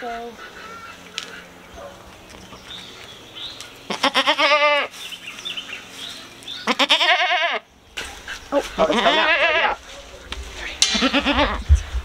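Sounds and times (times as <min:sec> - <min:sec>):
goat bleating: 0:03.9 - 0:05.0, 0:06.6 - 0:07.7, 0:08.6 - 0:09.8, 0:10.9 - 0:11.7.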